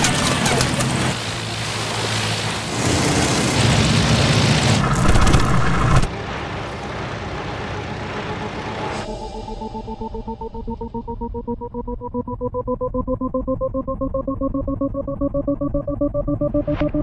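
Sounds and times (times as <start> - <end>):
propeller plane engine droning: 0.0 - 12.4
distant engine drone: 0.0 - 17.0.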